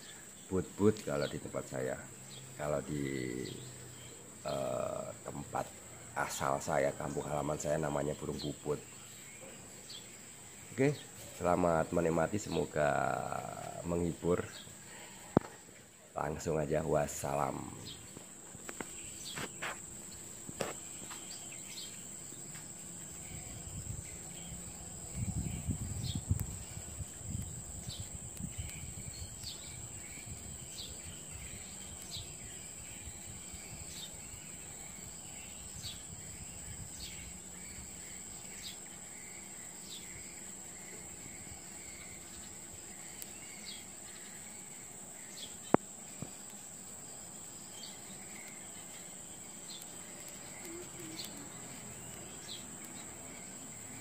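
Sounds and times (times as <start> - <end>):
insect trill: 0.0 - 54.0.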